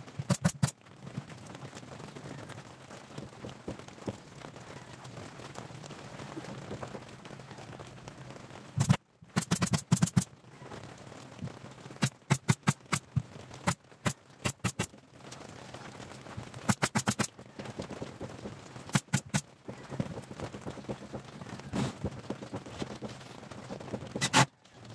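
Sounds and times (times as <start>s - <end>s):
nail gun firing: 0.2s - 0.7s, 8.8s - 10.3s, 12.0s - 13.1s, 14.4s - 14.9s, 16.7s - 17.3s, 18.9s - 19.4s, 24.2s - 24.5s.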